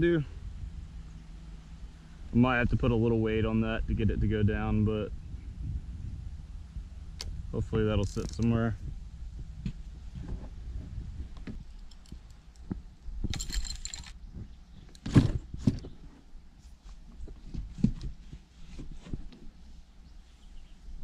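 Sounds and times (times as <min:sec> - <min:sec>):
wind on microphone: 0:02.3 - 0:11.7
fishing gear knocks and rattles: 0:11.4 - 0:14.2.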